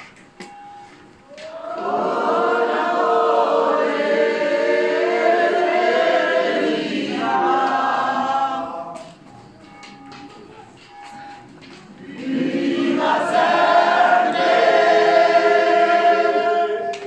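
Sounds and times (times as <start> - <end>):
crowd singing a chant: 1.4 - 9.4, 11.9 - 17.0.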